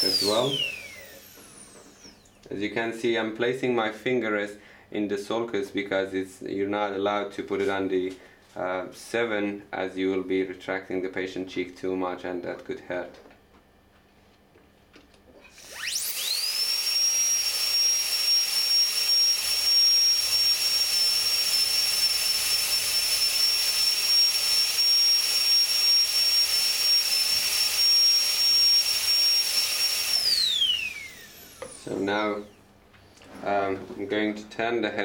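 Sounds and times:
dental drill whining: 0.0s - 2.5s, 15.4s - 32.6s.

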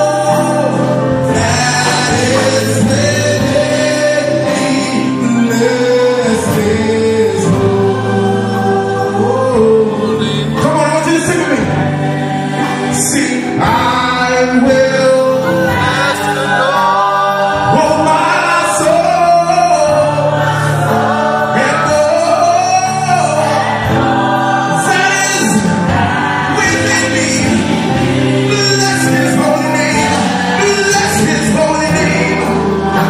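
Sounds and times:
backing singers: 0.0s - 33.0s
man singing lead into microphone: 0.0s - 33.0s
sustained musical accompaniment: 0.0s - 33.0s.

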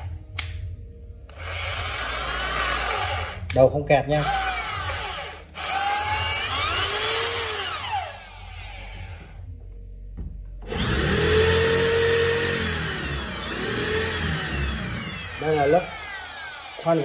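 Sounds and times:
electric drill running: 1.3s - 3.5s, 4.2s - 9.3s, 10.7s - 17.0s.

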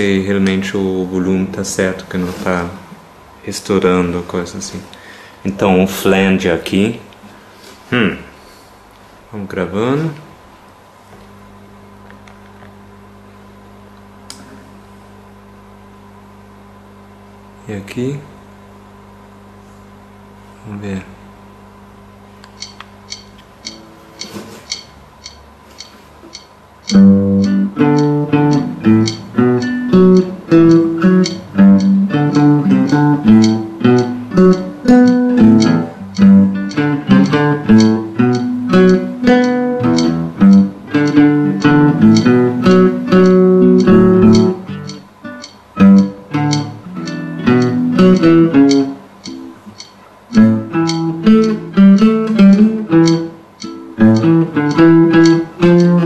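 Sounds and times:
flanged electric guitar: 26.9s - 49.6s.

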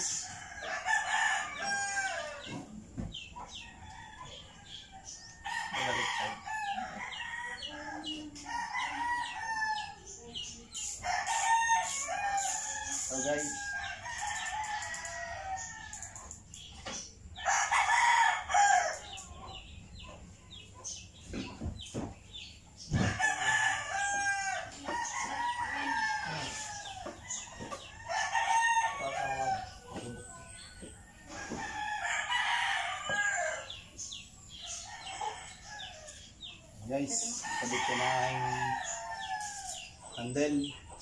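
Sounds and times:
rooster crowing: 0.0s - 2.6s, 5.4s - 10.0s, 17.4s - 19.1s, 23.0s - 30.5s, 31.3s - 33.8s, 37.1s - 39.9s.

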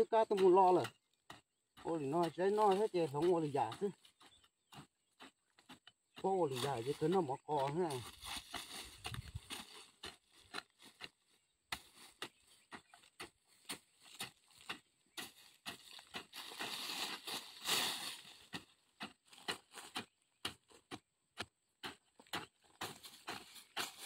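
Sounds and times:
hoe scraping soil: 0.0s - 24.0s
hoe chopping into soil: 11.7s - 24.0s.

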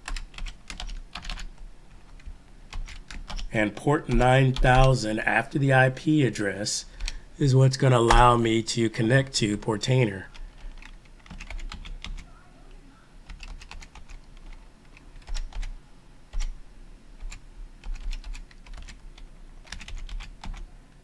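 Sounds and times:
keyboard keys clicking: 0.0s - 3.5s, 10.3s - 12.3s, 13.3s - 15.7s, 17.2s - 20.6s.

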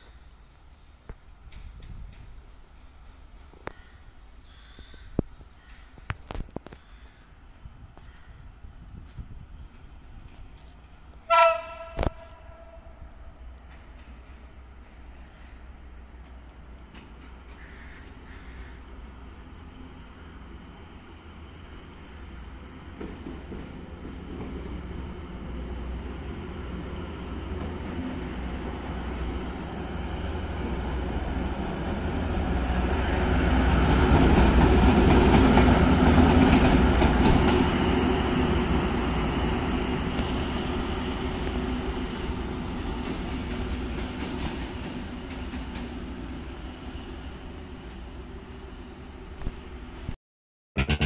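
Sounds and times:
wheels on rail: 8.8s - 50.1s
locomotive drone: 9.5s - 44.0s, 50.8s - 51.0s.

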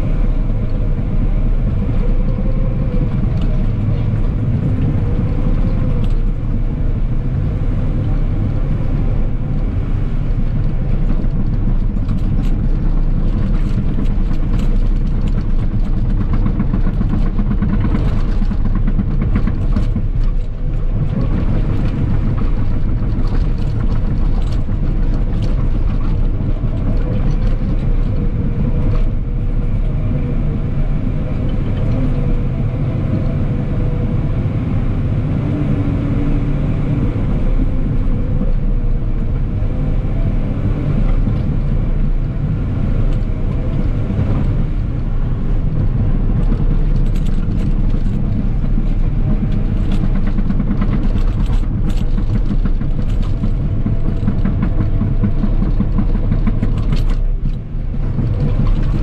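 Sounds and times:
diesel engine rumbling: 0.0s - 59.0s
machine clicks and knocks: 46.3s - 59.0s.

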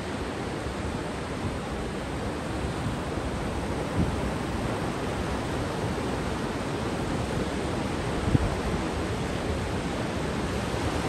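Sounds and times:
sea waves washing onto beach: 0.0s - 11.0s.

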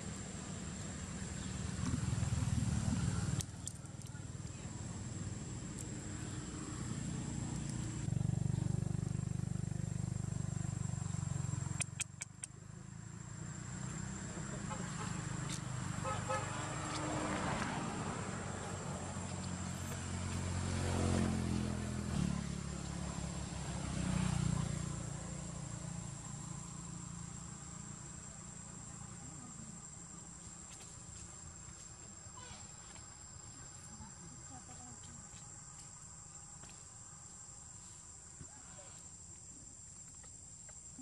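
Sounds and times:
insects buzzing: 0.0s - 41.0s
vehicle engine passing by: 0.1s - 12.0s, 12.6s - 31.0s.

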